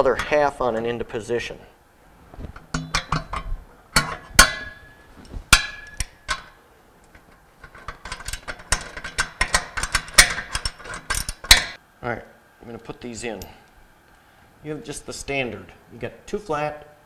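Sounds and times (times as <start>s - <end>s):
wrench clinking on metal nut: 7.1s - 11.8s.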